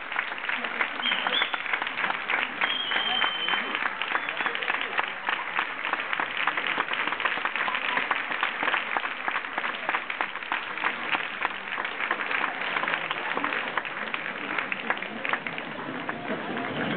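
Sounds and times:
crowd applauding: 0.0 - 16.9.

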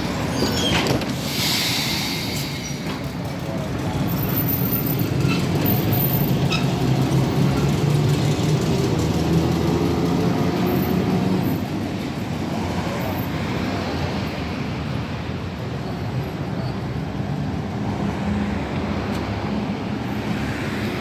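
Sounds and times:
tram wheels rumbling on rail: 0.0 - 21.0.

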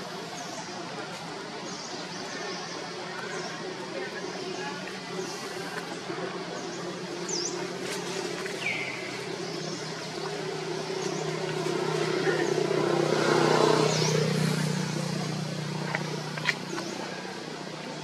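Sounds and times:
vehicle engine humming: 5.0 - 18.0.

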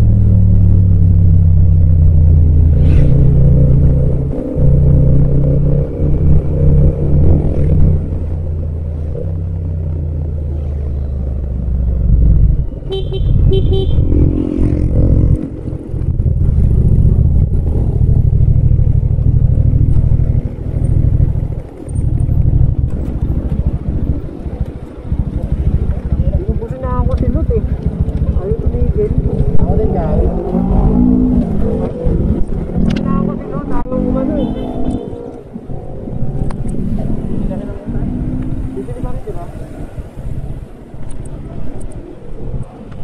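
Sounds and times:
motorcycle engine running: 0.0 - 35.1
vehicle horn toots: 12.9 - 14.0.

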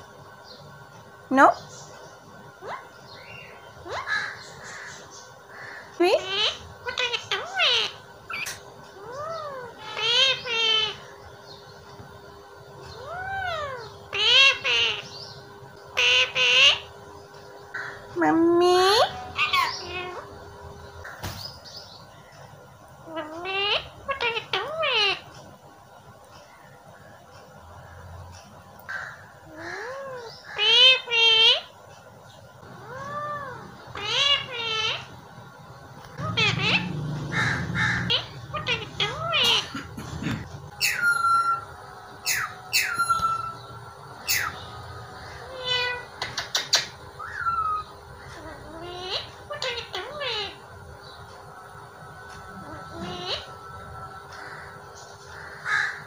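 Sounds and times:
parakeet buzzy call: 2.6 - 11.1, 12.9 - 16.9, 18.8 - 20.4, 23.1 - 25.3, 36.2 - 39.8, 40.8 - 44.6, 45.2 - 50.7
parakeet squawking: 2.6 - 11.2, 12.9 - 17.0, 17.7 - 20.4, 23.0 - 25.3, 28.9 - 31.7, 32.6 - 35.2, 36.1 - 51.2, 52.6 - 53.6, 55.3 - 56.0
parakeet whistle-like call: 40.8 - 44.7
parakeet clicks: 46.2 - 47.0.

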